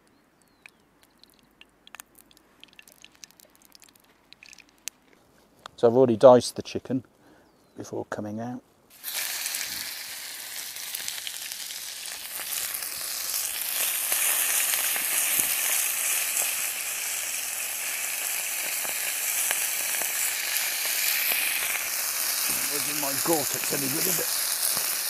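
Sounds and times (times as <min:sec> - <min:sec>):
chicken sizzling in a frying pan: 0:08.9 - 0:25.0.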